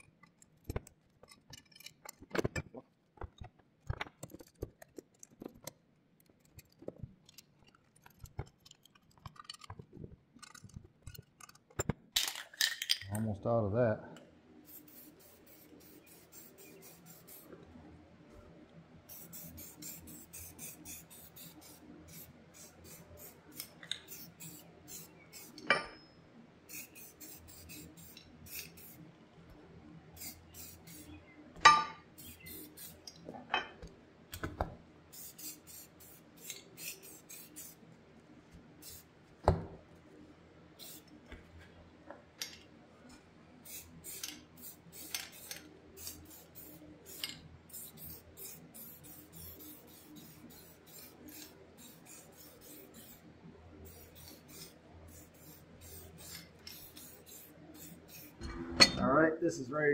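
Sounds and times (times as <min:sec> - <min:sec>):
spray-paint can hissing: 0:14.6 - 0:17.5, 0:19.1 - 0:25.6, 0:26.7 - 0:29.0, 0:30.2 - 0:31.1, 0:32.2 - 0:33.0, 0:35.1 - 0:37.8, 0:38.8 - 0:39.1, 0:40.8 - 0:41.1, 0:43.6 - 0:53.2, 0:53.8 - 0:58.4.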